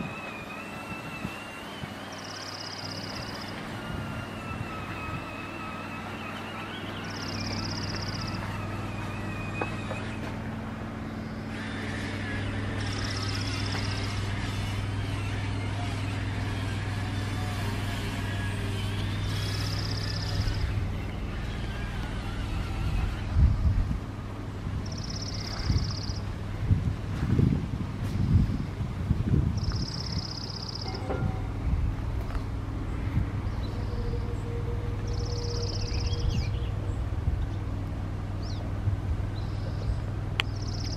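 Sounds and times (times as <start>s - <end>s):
low engine rumble: 0.0s - 40.9s
low motor hum: 0.0s - 40.9s
songbird trilling and chirping: 2.1s - 3.7s, 6.2s - 10.3s, 24.8s - 26.3s, 29.6s - 31.0s, 33.4s - 37.6s, 39.3s - 40.9s.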